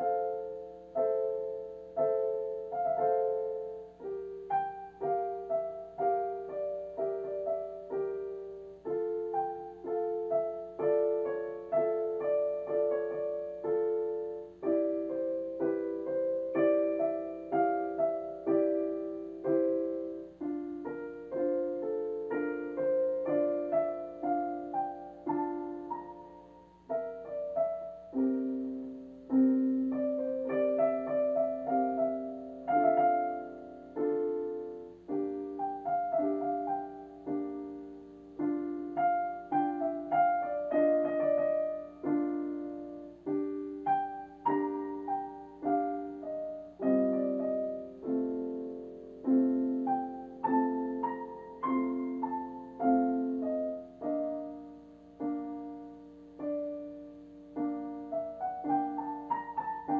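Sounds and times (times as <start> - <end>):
slow keyboard piano piece: 0.0 - 59.9.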